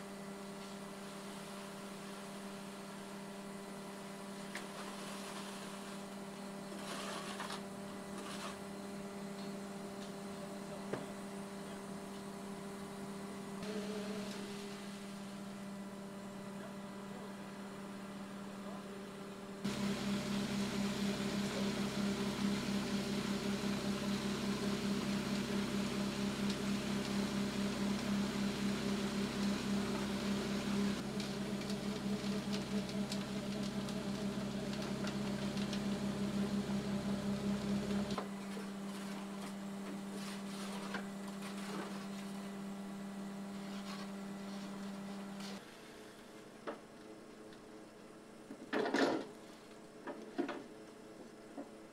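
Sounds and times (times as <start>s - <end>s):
concrete mixer truck humming: 0.0s - 46.3s
lighter steady hum: 19.6s - 31.8s.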